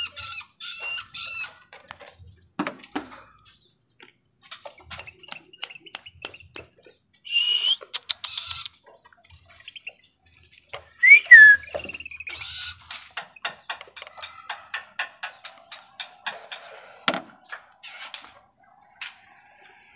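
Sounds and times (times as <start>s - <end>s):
songbird chirping: 0.0s - 19.9s
gliding whistled bird notes: 7.2s - 7.9s, 11.0s - 12.3s.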